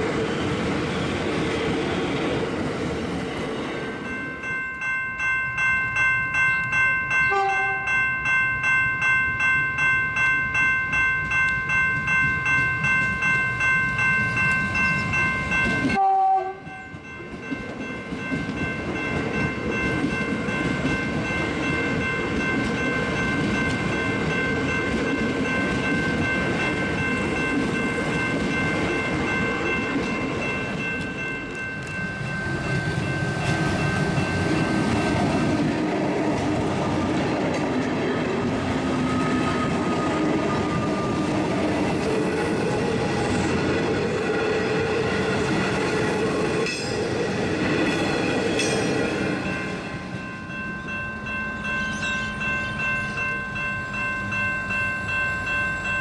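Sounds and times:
electric trains passing: 0.0 - 56.0
high train whine: 0.0 - 56.0.

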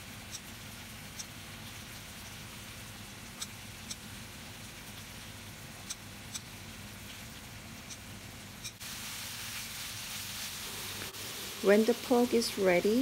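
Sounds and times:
meat sizzling in a frying pan: 8.8 - 13.0.

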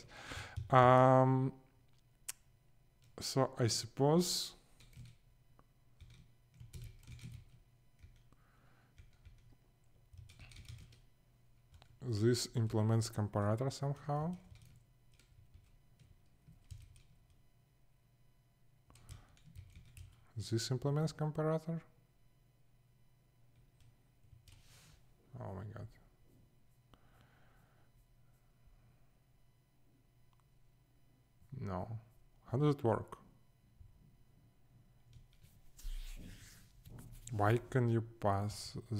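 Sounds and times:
faint low hum: 0.0 - 38.9
faint typing on keyboard: 0.3 - 0.8, 1.8 - 17.5, 18.8 - 21.4, 23.5 - 24.8, 35.0 - 36.0.

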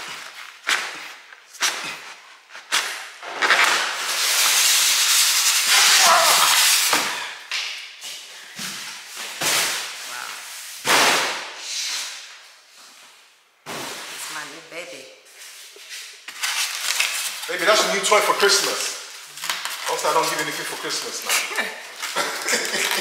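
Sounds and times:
cardboard scraping over polystyrene: 0.0 - 7.3, 15.4 - 23.0.

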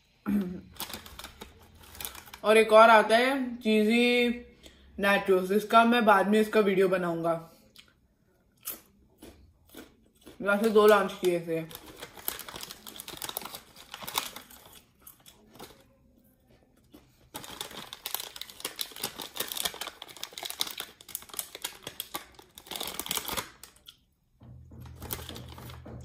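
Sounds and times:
plastic packet crinkling: 0.6 - 2.5, 10.5 - 16.0, 17.0 - 24.0, 24.8 - 26.0.

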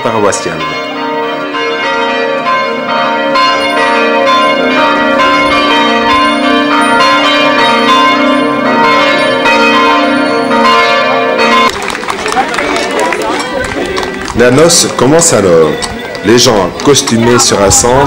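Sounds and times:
church bells ringing a peal: 0.0 - 18.0.

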